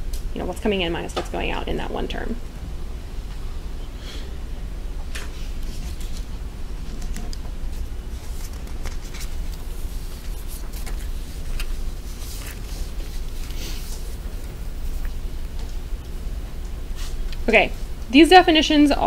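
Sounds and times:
steady low rumble: 0:00.0 - 0:19.0
hand rustling paper sheets: 0:05.2 - 0:15.8.

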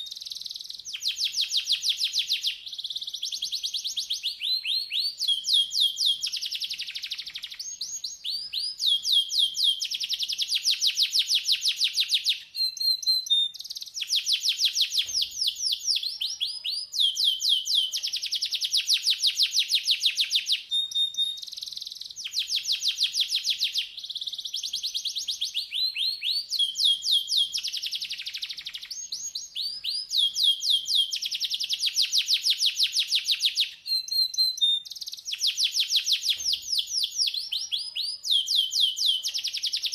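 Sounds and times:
canary singing trills: 0:00.0 - 0:39.9
canary steady whistle: 0:00.0 - 0:39.9.

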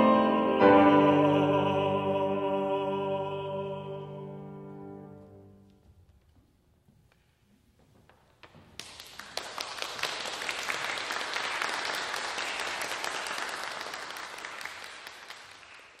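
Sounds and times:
audience applause: 0:08.8 - 0:16.0.

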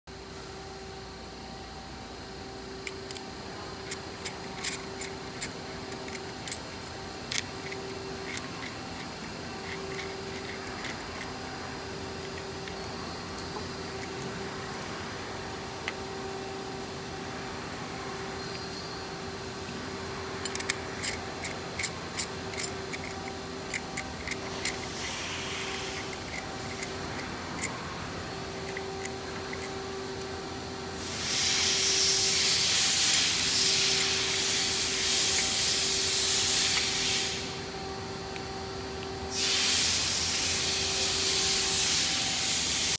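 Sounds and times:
faint steady hum: 0:00.1 - 0:42.9
loud steady hiss: 0:00.8 - 0:42.9
metal parts clicking and clinking: 0:02.8 - 0:14.7, 0:18.1 - 0:37.6.

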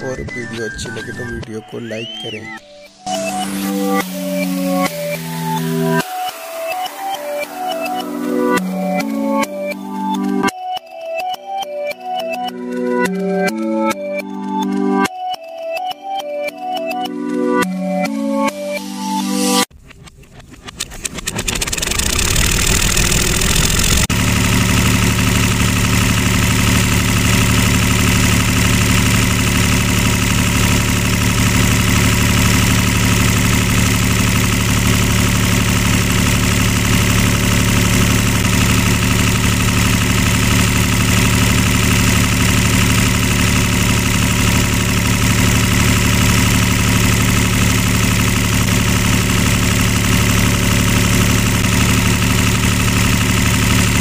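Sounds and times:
toy tractor engine hum: 0:19.8 - 0:54.0.

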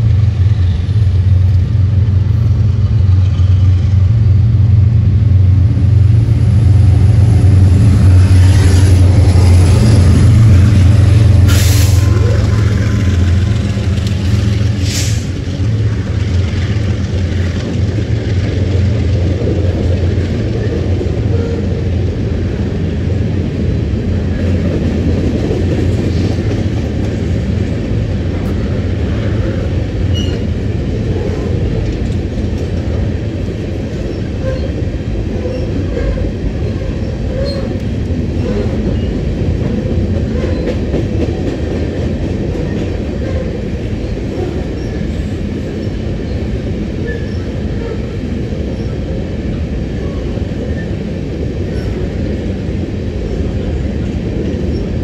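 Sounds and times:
diesel locomotive engine hum: 0:00.0 - 0:55.0
train wheels rumbling on rails: 0:00.0 - 0:55.0
wheel squeals: 0:30.1 - 0:30.5.

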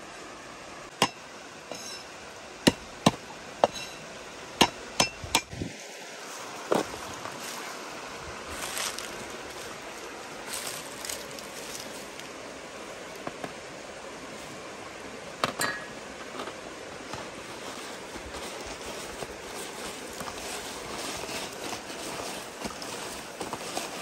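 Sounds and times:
steady outdoor hiss: 0:00.0 - 0:24.0
bowls clinking on metal tray: 0:15.4 - 0:16.0.

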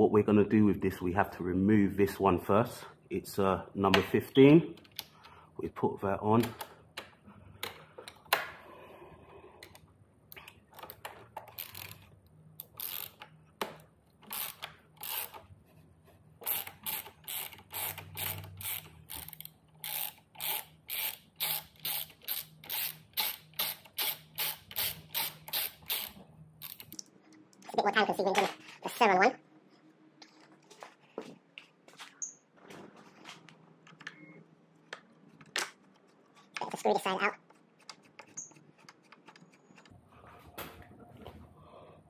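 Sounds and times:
ratchet wrench clicking: 0:12.6 - 0:13.2, 0:14.2 - 0:15.4, 0:16.4 - 0:27.0.

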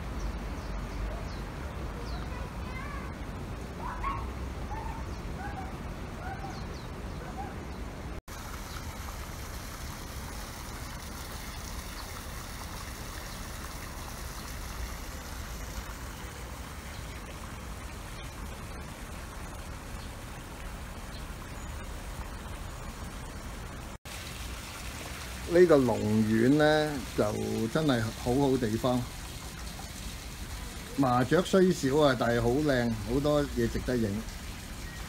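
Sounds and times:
water trickling in pond: 0:07.9 - 0:35.0.

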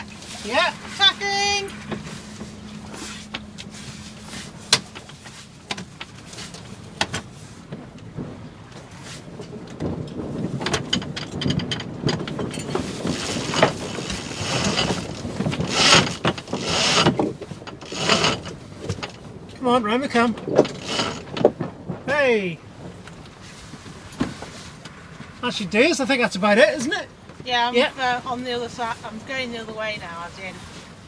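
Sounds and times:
rigging rattling and rustling: 0:00.0 - 0:27.7
wind on microphone: 0:07.6 - 0:19.6, 0:20.2 - 0:24.6.

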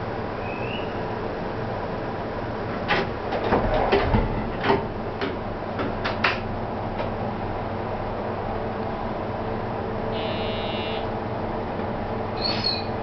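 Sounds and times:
electric train equipment hum: 0:00.0 - 0:13.0
sharp clicks and knocks: 0:02.9 - 0:07.2.

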